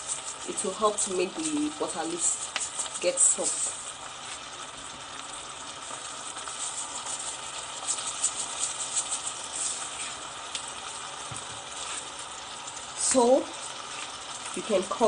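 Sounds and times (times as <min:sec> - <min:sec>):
vegetables sizzling in a pot: 0:00.0 - 0:15.0.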